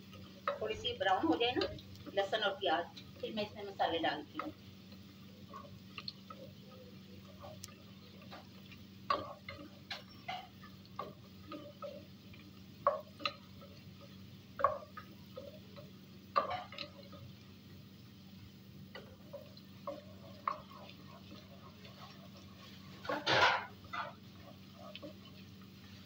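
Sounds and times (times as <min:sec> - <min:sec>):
wooden spoon clacking on pot: 0:00.1 - 0:03.4, 0:04.2 - 0:04.6, 0:07.2 - 0:17.4, 0:18.8 - 0:25.7.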